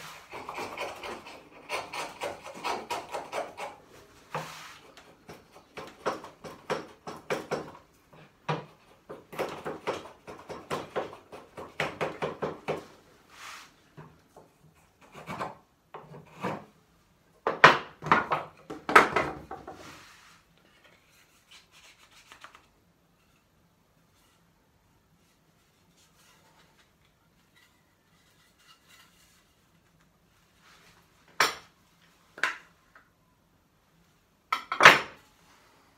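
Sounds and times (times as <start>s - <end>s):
chisel scraping wood: 0.0s - 7.2s, 14.8s - 16.7s.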